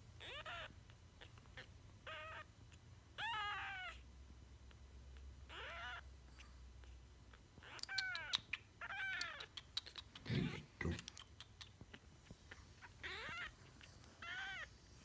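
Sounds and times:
kitten mewing: 7.6 - 12.1, 12.8 - 13.6.

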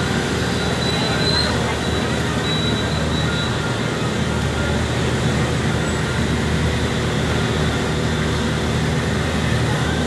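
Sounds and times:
passing motorbikes and vehicles: 0.0 - 10.0.

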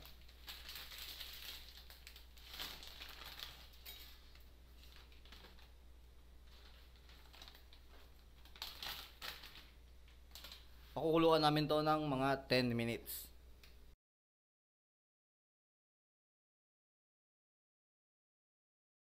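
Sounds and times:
dry spaghetti crinkling and crackling: 0.0 - 5.8, 6.4 - 10.9.

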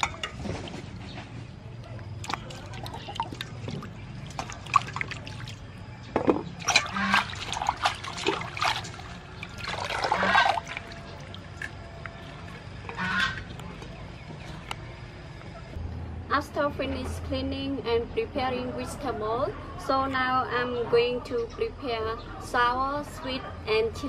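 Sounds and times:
water sloshing and splashing in bowl: 0.0 - 1.2, 1.8 - 13.9.

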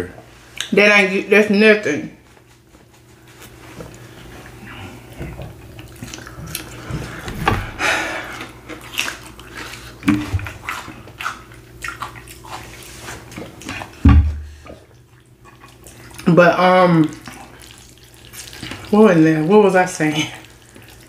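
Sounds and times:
chewing mouth noises: 3.4 - 7.2, 8.2 - 14.0, 14.6 - 16.3, 17.0 - 18.9, 20.3 - 21.0
lip smacks: 5.7 - 14.0
low thump: 14.0 - 14.5.

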